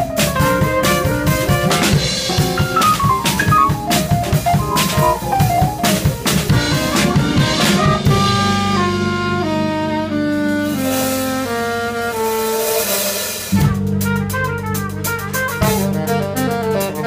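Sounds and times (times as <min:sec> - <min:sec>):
drum kit: 0:00.0 - 0:08.6
trumpet: 0:00.6 - 0:05.7, 0:07.2 - 0:17.0
saxophone: 0:01.6 - 0:05.8, 0:14.6 - 0:17.0.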